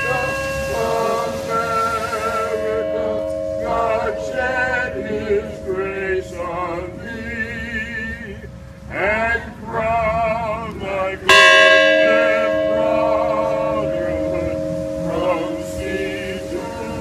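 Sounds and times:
large hanging bell ringing: 0.0s - 8.3s, 11.3s - 17.0s
person singing: 0.0s - 8.4s, 12.0s - 17.0s.

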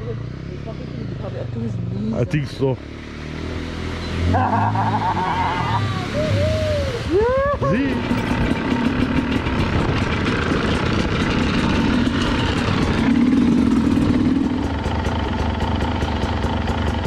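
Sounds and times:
dirt bike engine running: 7.7s - 17.0s.

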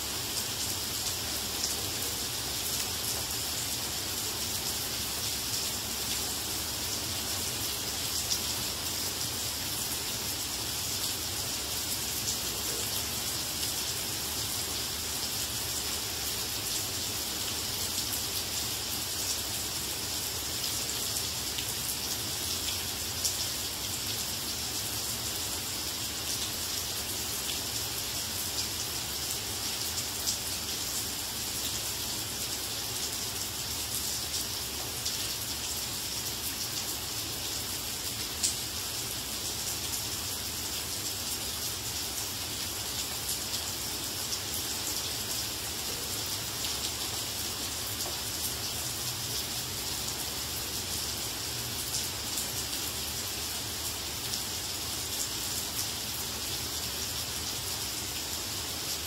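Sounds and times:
rain on plants: 0.0s - 59.0s.

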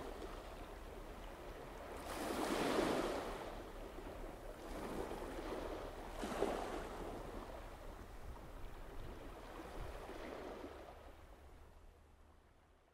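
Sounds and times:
sea and wind rushing: 0.0s - 12.8s.

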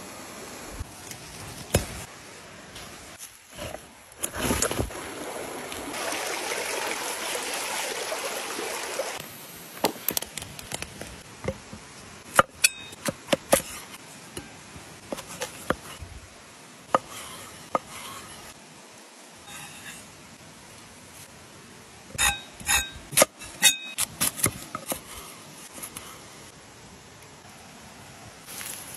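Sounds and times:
steady hiss: 0.0s - 4.8s, 9.2s - 23.2s, 24.7s - 28.9s.

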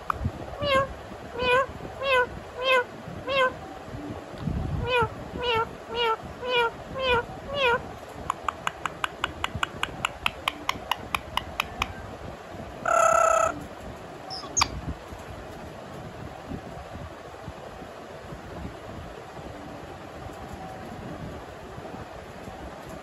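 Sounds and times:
parrot mimicking cat meow: 0.0s - 3.6s, 4.8s - 7.8s, 12.8s - 13.6s
parrot squawk: 0.6s - 3.6s, 4.8s - 7.8s, 12.8s - 13.6s, 14.3s - 14.7s
rapid short clicks: 8.3s - 12.0s.

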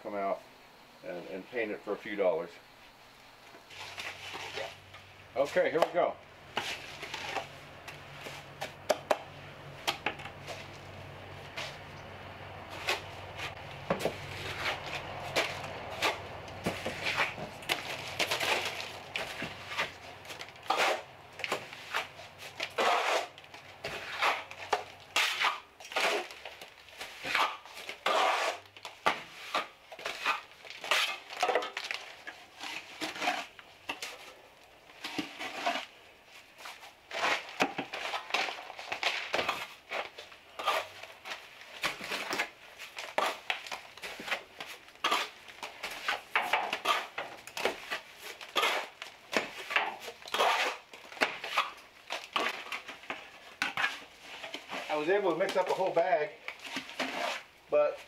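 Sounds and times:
steel trowel scraping and clinking: 21.8s - 26.4s, 27.0s - 28.7s, 45.0s - 49.0s, 49.6s - 51.8s, 56.6s - 57.5s.

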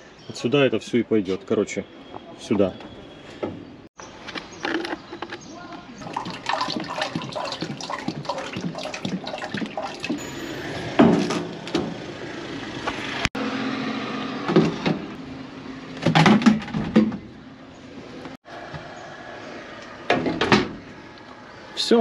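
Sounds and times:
oil pouring and gurgling: 6.0s - 11.3s.

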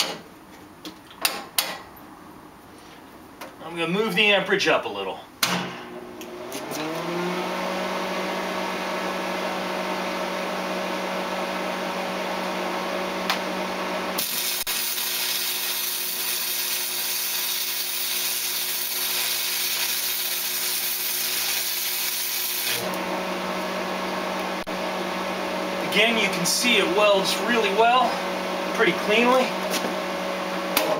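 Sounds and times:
welder machine hum: 5.9s - 30.9s
welding arc crackling: 14.2s - 23.0s.

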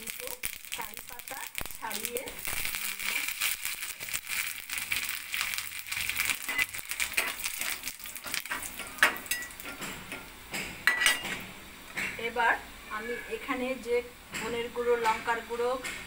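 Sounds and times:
seeds spluttering in hot oil: 0.0s - 10.4s
metal spoon scraping a pan: 6.2s - 10.3s.

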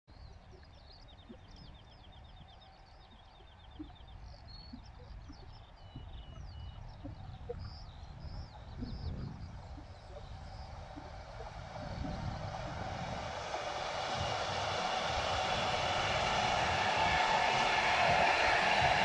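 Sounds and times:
songbirds chirping: 0.1s - 12.4s
low steady rumble: 0.1s - 19.0s.

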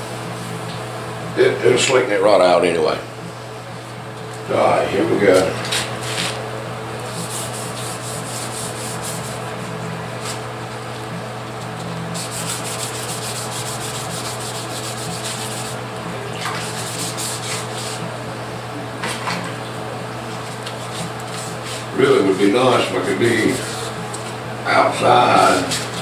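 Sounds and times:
hand sanding scratchy strokes: 7.1s - 9.5s, 12.1s - 15.8s, 16.6s - 18.0s, 20.8s - 21.9s, 22.7s - 24.0s.

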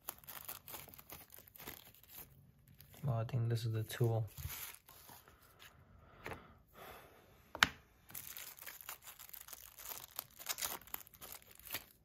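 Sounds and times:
plastic bag crinkling: 0.0s - 3.1s, 3.8s - 5.2s, 8.1s - 12.0s.

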